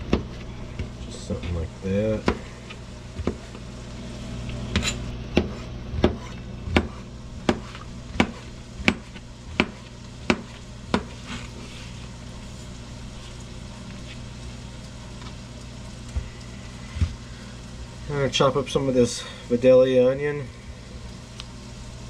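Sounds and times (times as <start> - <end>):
knife chopping on plastic board: 0.0 - 0.3, 2.2 - 2.5, 3.2 - 3.6, 4.7 - 11.2.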